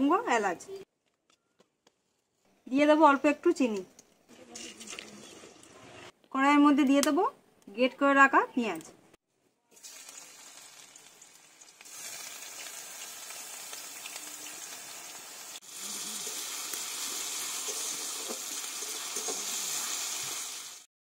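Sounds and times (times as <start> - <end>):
onion sizzling in hot oil: 9.7 - 20.9.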